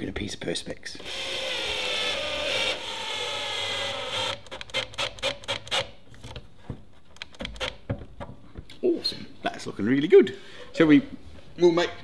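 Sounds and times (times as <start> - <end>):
cordless drill boring: 1.0 - 4.5
sharp clicks and taps: 4.3 - 6.4, 7.1 - 8.8.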